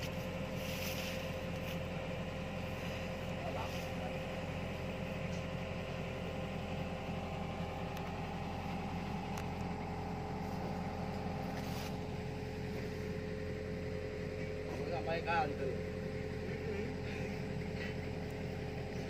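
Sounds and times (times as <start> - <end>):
constant tone: 0.0 - 19.0
excavator diesel engine idling: 0.0 - 19.0.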